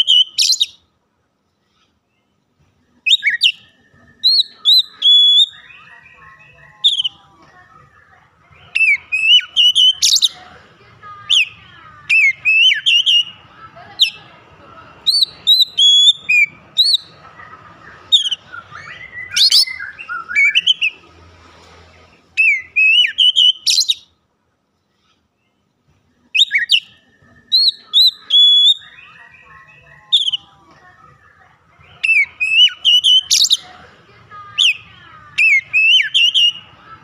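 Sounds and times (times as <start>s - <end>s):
bird singing whistled phrases: 0.0s - 0.8s, 3.0s - 6.2s, 8.7s - 10.4s, 12.1s - 13.3s, 15.1s - 17.1s, 18.1s - 21.0s, 22.4s - 24.1s, 26.3s - 29.5s, 30.1s - 30.5s, 32.0s - 33.7s, 35.4s - 36.7s.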